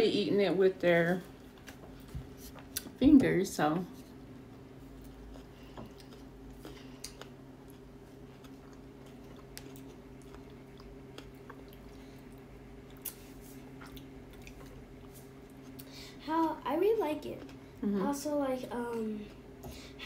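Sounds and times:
people chewing: 4.4s - 16.0s.

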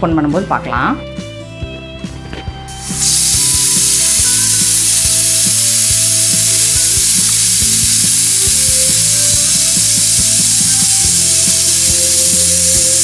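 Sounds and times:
pressure cooker steam hissing: 2.7s - 13.0s.

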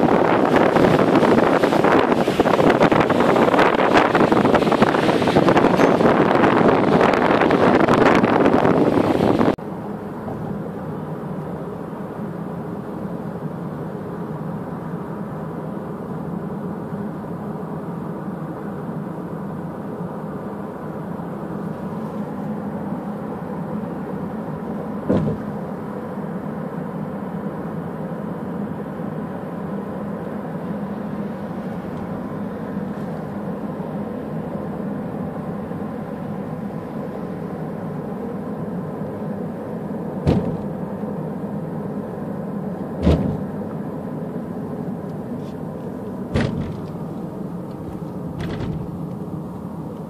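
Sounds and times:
car road noise from cabin: 0.0s - 50.0s
short knock: 25.1s - 25.4s.

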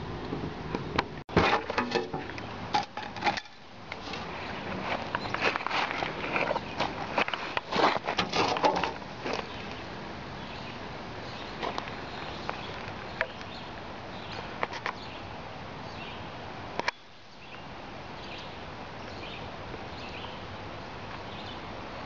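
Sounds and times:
steady creek hiss: 8.9s - 22.0s.

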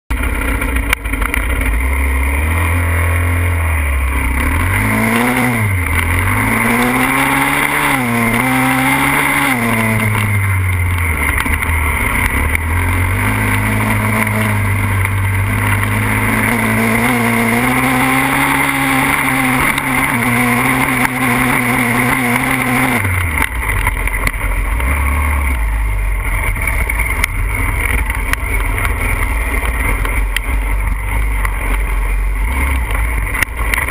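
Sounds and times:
pit bike engine revving: 0.1s - 33.9s.

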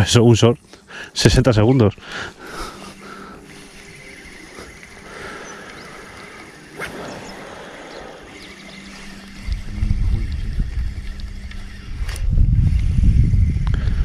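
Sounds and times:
fishing reel gears whirring: 0.0s - 14.0s
reel click: 2.8s - 9.6s, 10.2s - 12.9s.

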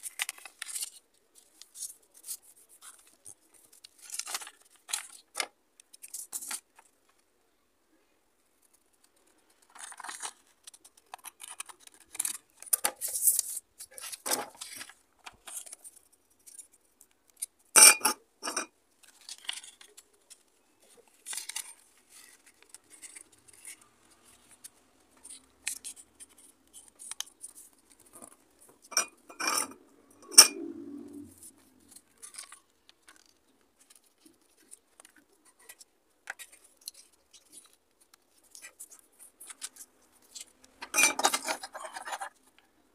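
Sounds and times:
paper rustling and folding: 0.0s - 7.2s, 8.5s - 17.5s, 19.0s - 28.9s, 31.3s - 42.7s.

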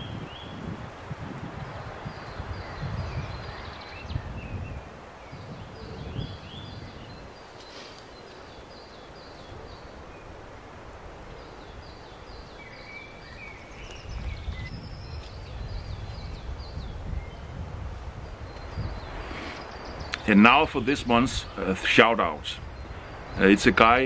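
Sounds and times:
songbirds singing: 0.0s - 24.0s
lower bird chirps: 1.6s - 10.4s, 11.3s - 17.6s, 18.2s - 24.0s.

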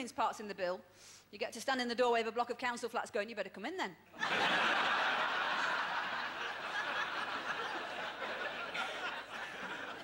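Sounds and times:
audience laughing: 4.2s - 10.0s.

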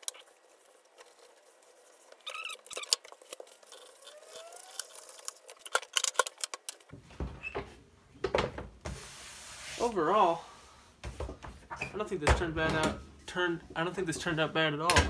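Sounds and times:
faint squeaks: 2.1s - 3.0s, 3.6s - 5.2s.

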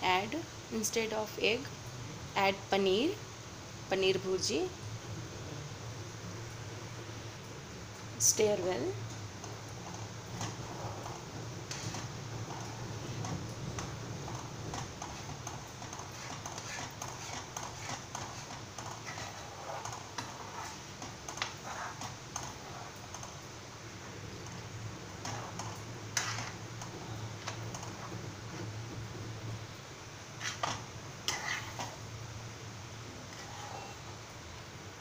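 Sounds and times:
low steady hum: 0.0s - 35.0s
metal spoon scraping a pan: 9.8s - 23.3s, 24.4s - 28.7s, 30.4s - 32.0s, 33.3s - 34.1s.

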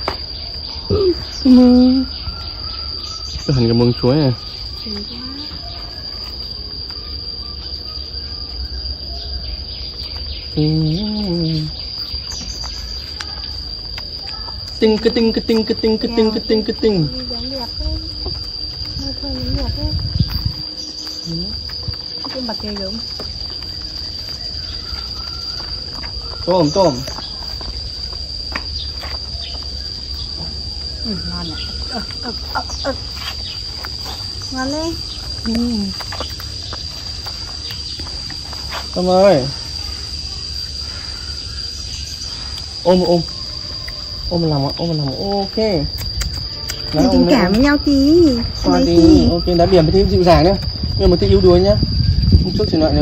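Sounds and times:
high-pitched insect buzz: 0.0s - 53.0s
person humming: 10.6s - 11.8s.

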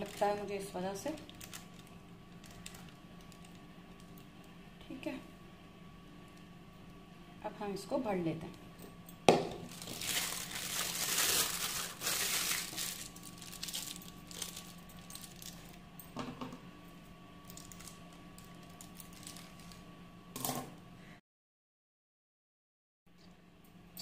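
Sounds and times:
plastic bag crinkling: 0.0s - 4.3s, 9.6s - 15.8s, 17.4s - 19.9s.

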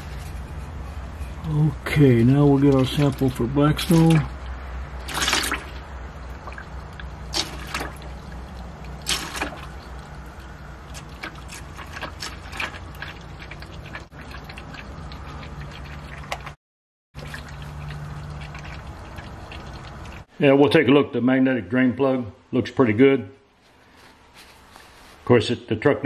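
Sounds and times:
liquid splashes: 2.9s - 16.6s, 17.2s - 20.3s.

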